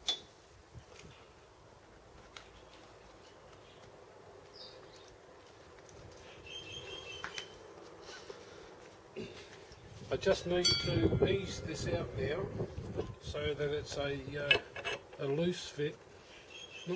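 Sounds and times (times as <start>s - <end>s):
steady low hum: 2.9s - 16.7s.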